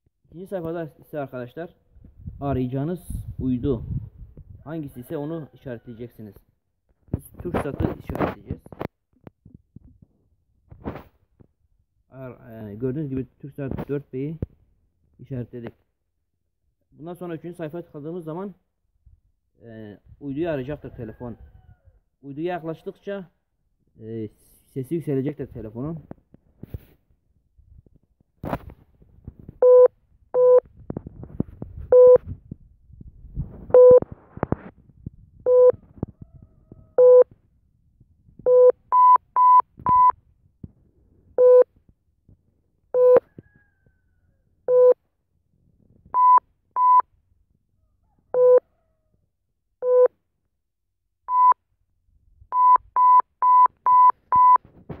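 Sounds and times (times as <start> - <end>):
phone beeping electronic tones: 29.6 - 30.6, 31.9 - 32.2, 33.7 - 34.0, 35.5 - 35.8, 37.0 - 37.3, 38.4 - 40.2, 41.4 - 41.7, 43.0 - 43.3, 44.7 - 45.0, 46.2 - 47.0, 48.4 - 48.6, 49.8 - 50.1, 51.3 - 51.6, 52.6 - 54.6.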